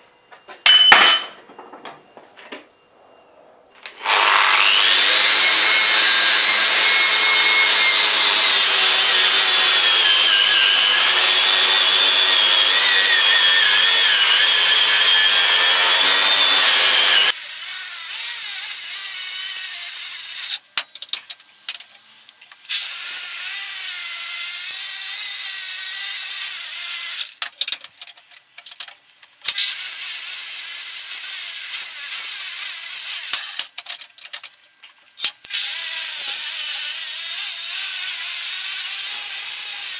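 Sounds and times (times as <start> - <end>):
wire wheel grinder whining: 3.8 - 20.6.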